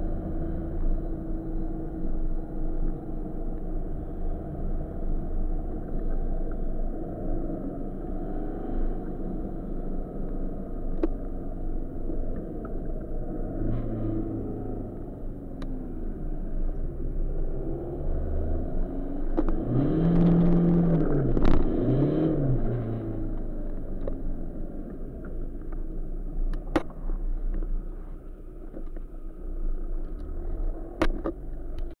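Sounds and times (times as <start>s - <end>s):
diesel engine revving in cabin: 11.8s - 28.6s.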